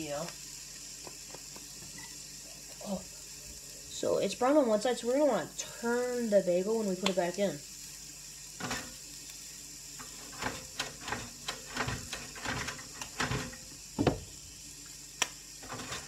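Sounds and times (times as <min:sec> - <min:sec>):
faint steady hiss: 0:00.0 - 0:12.3.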